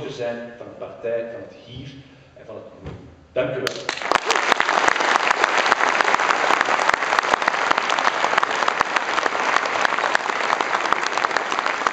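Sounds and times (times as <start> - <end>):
crowd applauding: 3.7 - 11.9.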